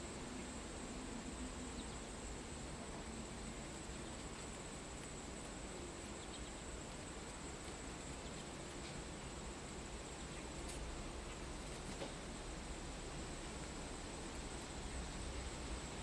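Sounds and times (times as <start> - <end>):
insects trilling: 0.0 - 11.6
low background hiss: 0.0 - 16.0.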